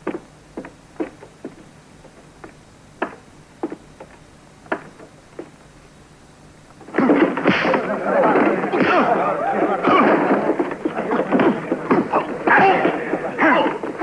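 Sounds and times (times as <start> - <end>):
boot footsteps on wooden floor: 0.0 - 5.6
men shouting and cheering: 7.6 - 14.0.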